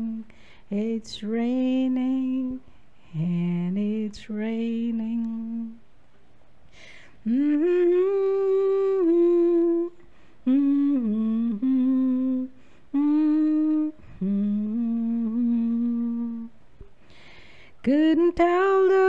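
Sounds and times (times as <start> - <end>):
woman humming: 7.3 - 16.6.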